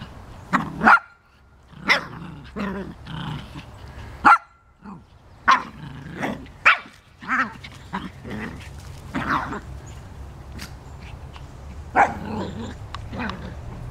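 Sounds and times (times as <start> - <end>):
small dogs barking: 0.5 - 2.8, 4.2 - 9.8, 11.9 - 13.6.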